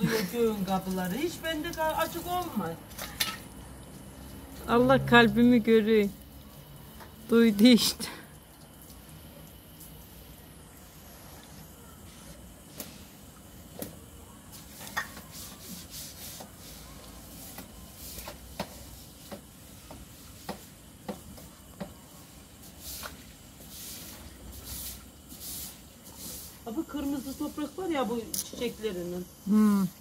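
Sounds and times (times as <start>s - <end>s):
broom scrubbing wet tiles: 0.0s - 13.8s, 14.4s - 29.0s.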